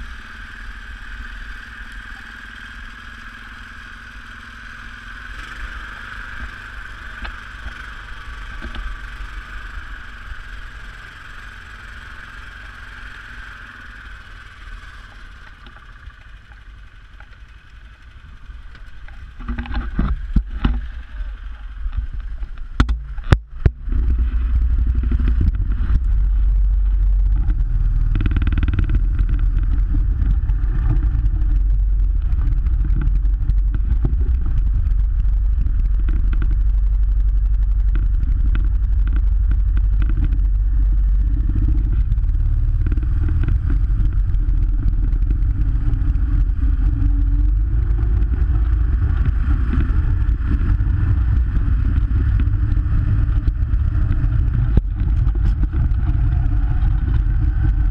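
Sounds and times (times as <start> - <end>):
utility vehicle engine running: 0.0 - 57.9.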